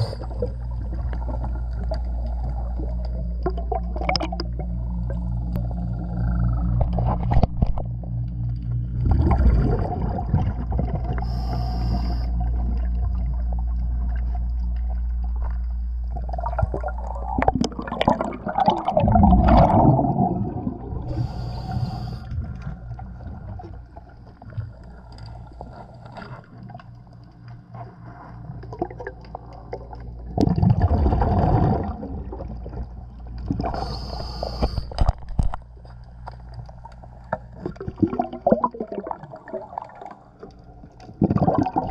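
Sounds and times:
scuba regulator breath hiss: 0.0s - 0.3s, 11.2s - 12.4s, 21.1s - 22.4s, 33.7s - 35.0s
low steady hum: 0.0s - 41.9s
gurgling exhaust bubbles: 9.0s - 11.2s, 16.1s - 21.2s, 28.6s - 33.9s, 37.6s - 40.2s, 41.1s - 41.9s.

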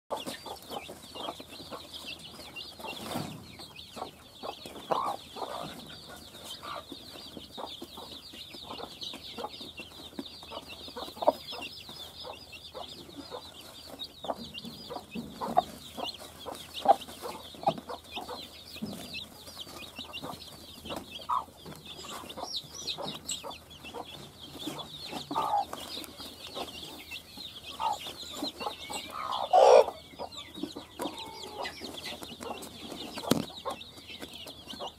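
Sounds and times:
chicks peeping: 0.1s - 34.9s
hen clucking: 0.1s - 34.9s
scratching and pecking on straw: 4.5s - 29.9s.

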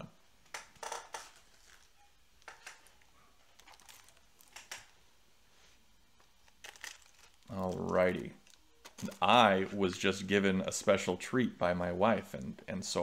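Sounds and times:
faint crinkling rustles: 1.3s - 4.6s, 5.5s - 10.1s.

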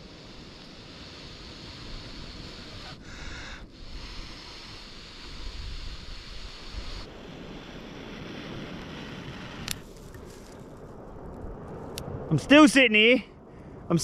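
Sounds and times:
breath blowing into tinder: 0.0s - 10.6s.

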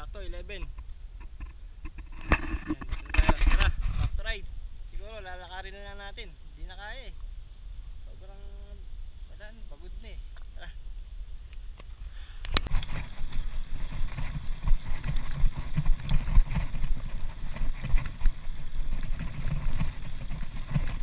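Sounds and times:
wind on microphone: 0.0s - 21.0s
bike tyres rumbling on concrete: 12.5s - 21.0s.

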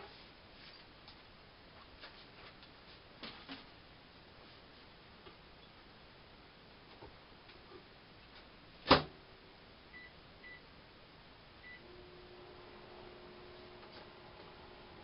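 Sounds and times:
microwave oven humming: 11.6s - 15.0s.

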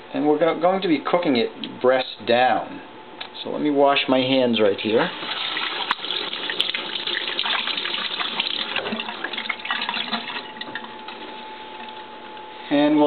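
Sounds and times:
tap water running: 4.8s - 12.4s.

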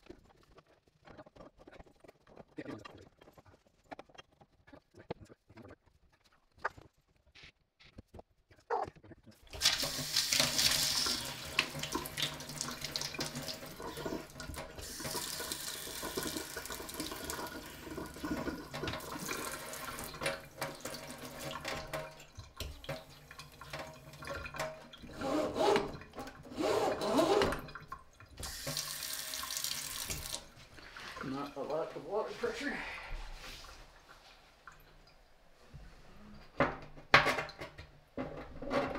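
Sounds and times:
faucet running into steel sink: 9.5s - 31.8s.

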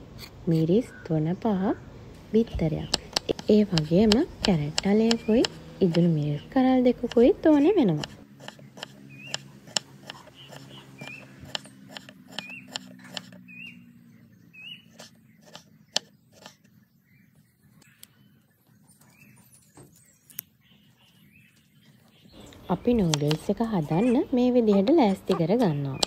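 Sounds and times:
small animal chirping: 8.0s - 13.8s.

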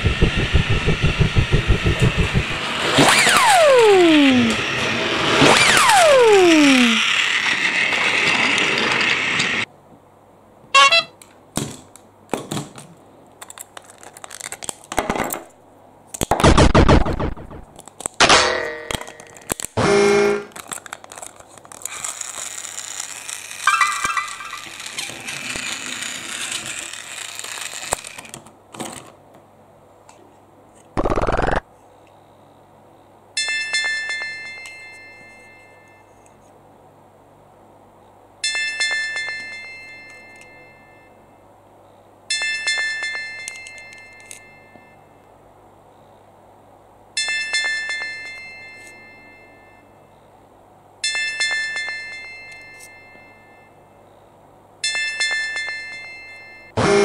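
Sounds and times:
plastic toy train parts clattering: 5.6s - 9.7s, 12.7s - 15.5s, 17.7s - 18.2s, 18.8s - 19.8s, 20.4s - 29.2s, 42.4s - 44.5s.

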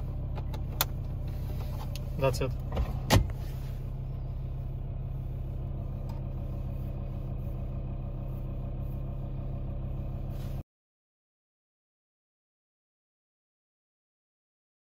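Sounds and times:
van engine idling: 0.0s - 10.6s.

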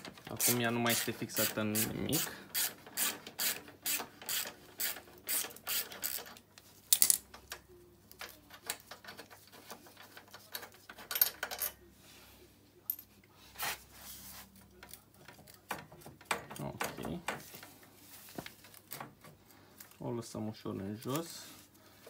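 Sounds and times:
ratchet wrench clicking: 2.5s - 6.3s.

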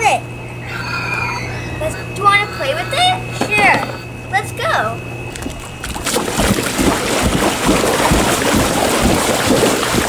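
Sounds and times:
water sloshing in a pool: 5.3s - 10.0s.

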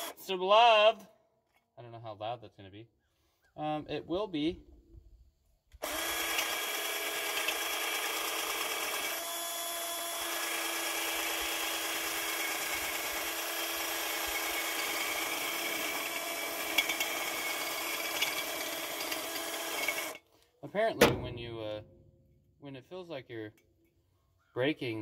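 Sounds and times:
cordless drill running: 0.0s - 0.2s, 5.8s - 20.2s.

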